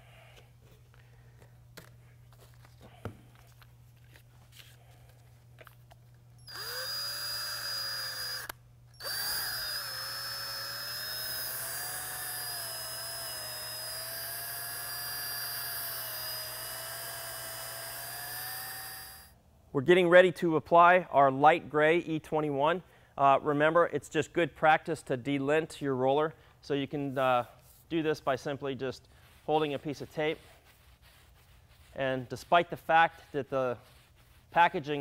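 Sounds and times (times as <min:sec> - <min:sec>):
cordless drill whining: 0:06.4 - 0:19.4.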